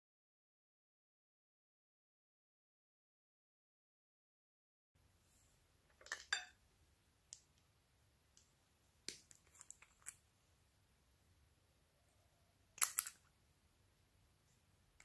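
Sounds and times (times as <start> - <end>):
plastic caps clicking: 12.8 - 13.3.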